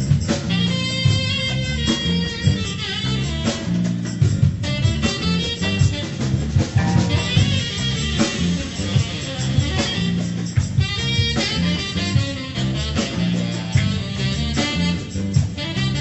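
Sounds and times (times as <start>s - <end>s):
instrumental music with drum beat: 0.0s - 16.0s.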